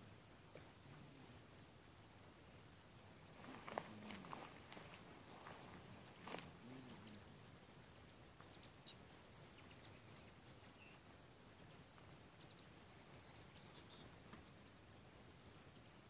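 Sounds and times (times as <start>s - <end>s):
faint bird chirps: 6.6s - 14.8s.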